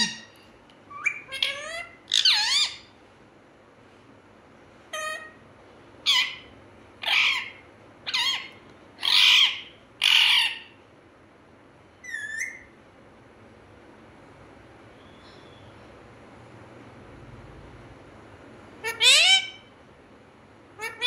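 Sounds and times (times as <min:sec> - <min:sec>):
parakeet squawking: 0:00.0 - 0:03.0, 0:04.9 - 0:05.4, 0:06.0 - 0:10.8, 0:12.0 - 0:12.7, 0:18.8 - 0:19.7, 0:20.8 - 0:21.0.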